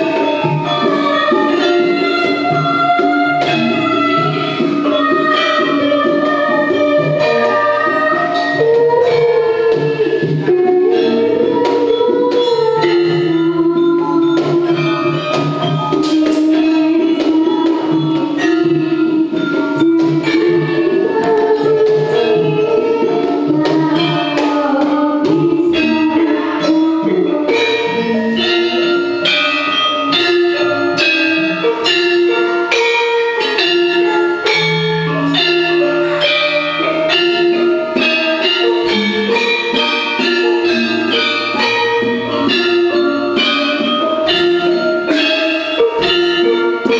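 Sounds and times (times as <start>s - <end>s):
girl singing: 0.0s - 46.9s
hand drums: 0.0s - 46.9s
metallophones ringing: 0.0s - 46.9s
kettle gongs ringing: 25.3s - 46.9s.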